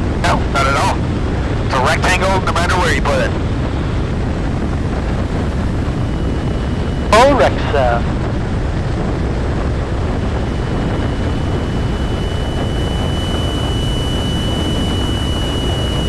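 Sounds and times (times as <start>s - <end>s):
aircraft engine and propeller droning: 0.0s - 16.0s
wind rush: 0.0s - 16.0s
faint steady high tone: 10.2s - 16.0s.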